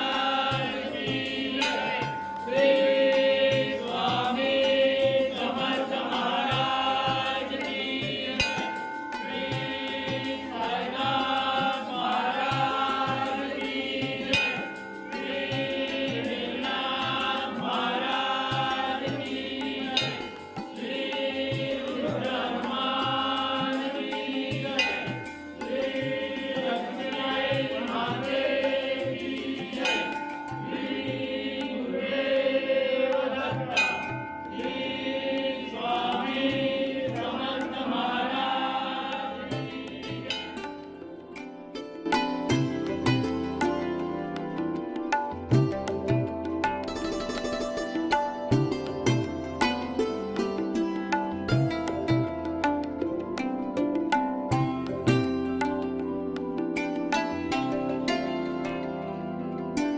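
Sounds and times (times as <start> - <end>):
steady drum beat: 0.0 - 35.0, 45.0 - 46.9
devotional chant singing: 0.0 - 41.6.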